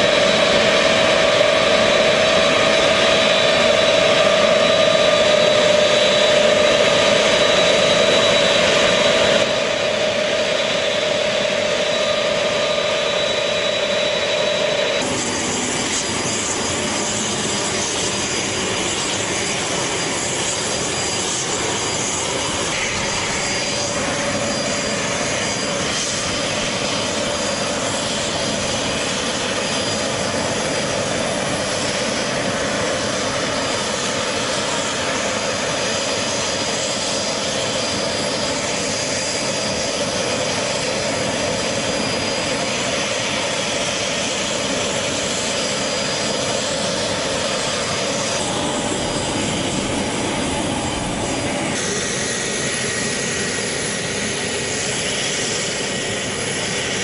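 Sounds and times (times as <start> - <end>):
thin high whine: 0.0 - 34.7, 44.6 - 55.1
aircraft engines running: 0.0 - 57.0.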